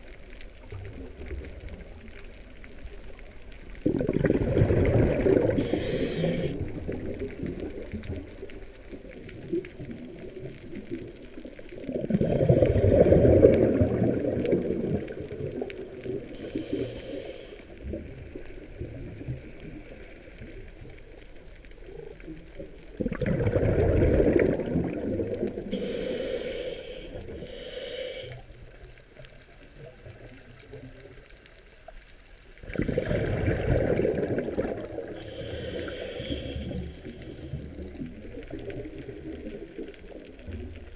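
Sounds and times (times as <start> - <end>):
exhaled bubbles rumbling: 0.0 - 27.8, 28.5 - 40.9
hissing regulator inhalations: 5.3 - 6.8, 16.3 - 17.8, 25.7 - 28.6, 35.0 - 37.7.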